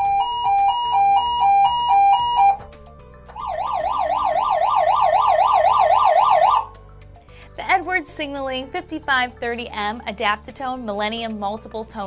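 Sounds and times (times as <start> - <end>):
electronic horn fast warble: 0.0 - 2.6, 3.4 - 6.7
electronic horn hi-lo tone: 0.0 - 2.6, 3.4 - 6.7.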